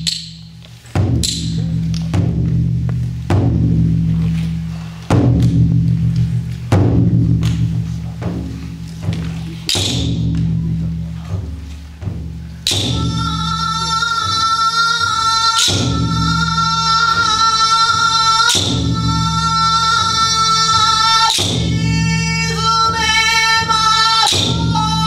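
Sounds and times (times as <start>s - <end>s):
high voice singing long notes: 12.8s - 25.0s
men's low sustained chorus: 12.8s - 25.0s.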